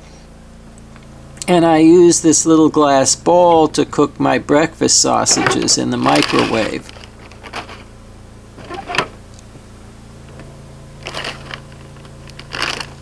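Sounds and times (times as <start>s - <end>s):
generator humming: 0.1s - 13.0s
plastic package crinkling: 6.1s - 7.9s, 11.0s - 13.0s.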